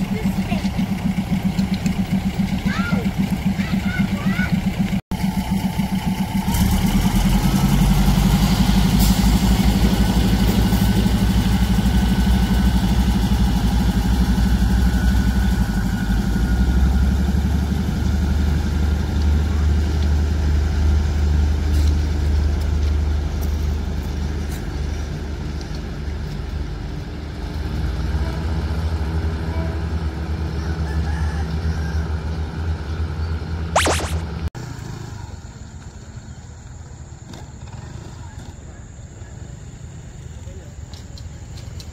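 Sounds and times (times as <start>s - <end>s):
diesel train engine throbbing: 0.0s - 30.8s.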